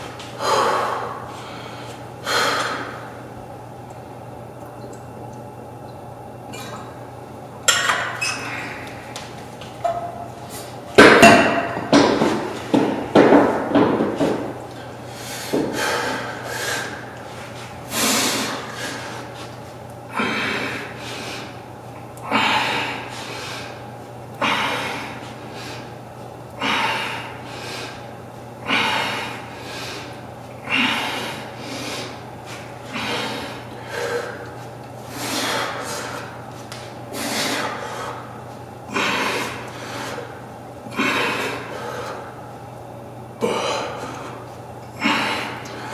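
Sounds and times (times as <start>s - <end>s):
man breathing hard: 0.4s - 3.2s, 14.8s - 19.5s, 20.1s - 21.6s, 22.3s - 23.8s, 24.4s - 25.9s, 26.6s - 28.0s, 28.6s - 36.4s, 37.1s - 42.4s, 43.4s - 44.4s, 45.0s - 45.9s.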